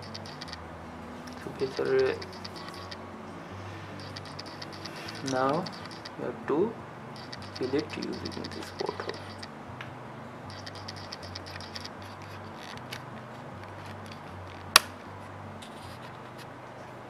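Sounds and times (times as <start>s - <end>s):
camera autofocus motor chattering: 0.0s - 0.6s, 1.3s - 3.0s, 4.0s - 6.2s, 7.2s - 9.5s, 10.5s - 13.0s
steady low hum: 0.0s - 17.0s.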